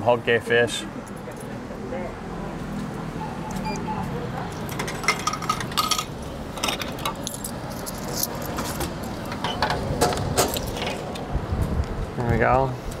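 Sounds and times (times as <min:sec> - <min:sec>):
vending machine clicks and clinks: 0:04.6 - 0:11.0.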